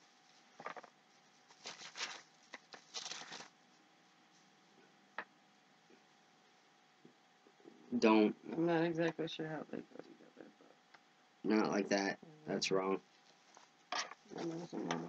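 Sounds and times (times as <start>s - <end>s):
packaging rustling: 1.5s - 3.6s.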